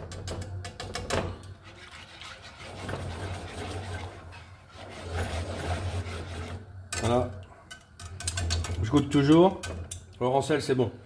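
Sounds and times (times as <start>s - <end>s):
whisk scraping in frying pan: 1.4s - 6.8s.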